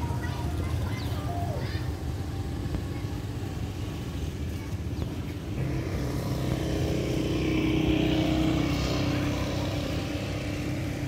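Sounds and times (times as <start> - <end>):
motor scooter passing by: 5.4 - 11.0.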